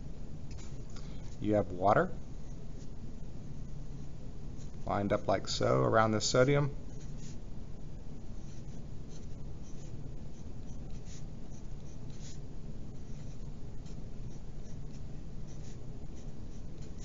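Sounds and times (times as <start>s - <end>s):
pencil scratching on paper: 6.8s - 7.4s, 8.4s - 17.0s.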